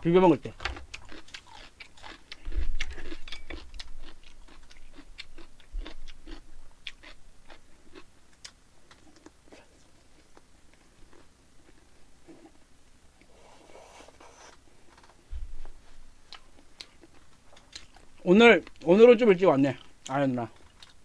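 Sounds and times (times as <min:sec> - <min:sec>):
chewing food: 0:00.6 - 0:12.6, 0:16.3 - 0:18.9, 0:19.7 - 0:21.0.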